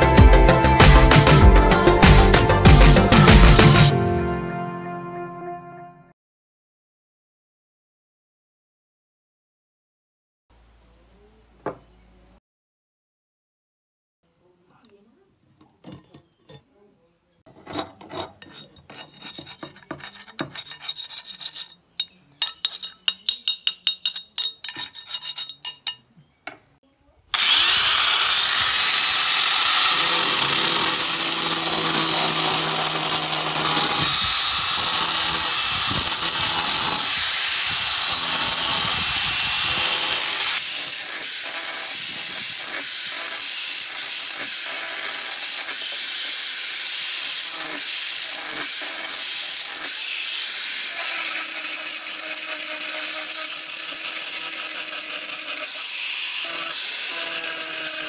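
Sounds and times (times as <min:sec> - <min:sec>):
angle grinder grinding metal: 0:00.0 - 0:03.9, 0:17.6 - 0:25.9, 0:27.4 - 0:58.0.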